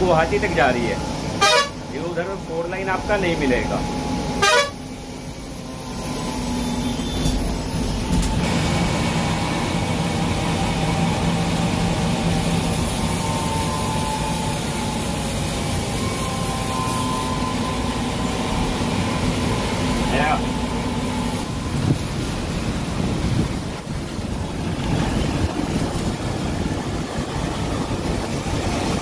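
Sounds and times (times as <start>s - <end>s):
bus engine running: 0.0s - 29.0s
tyre noise on wet road: 21.4s - 29.0s.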